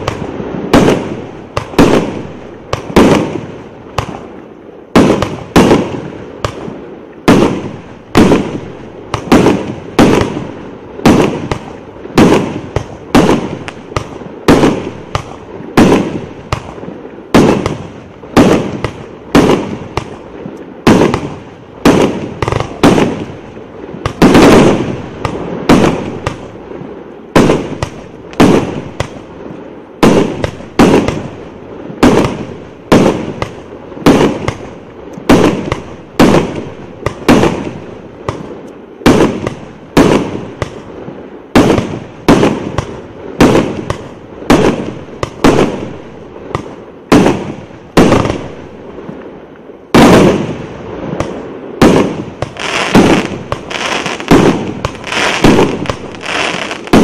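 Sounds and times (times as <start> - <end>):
fireworks bangs: 0.0 - 49.3, 49.9 - 57.0.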